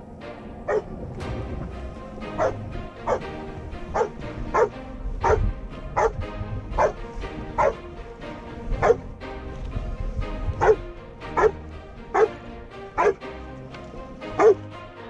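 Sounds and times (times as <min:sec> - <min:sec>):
dog barking: 0:00.7 - 0:00.9, 0:02.4 - 0:03.2, 0:04.0 - 0:06.2, 0:06.8 - 0:07.0, 0:07.6 - 0:07.8, 0:10.6 - 0:10.8, 0:11.4 - 0:12.4, 0:13.0 - 0:13.2, 0:14.4 - 0:14.6.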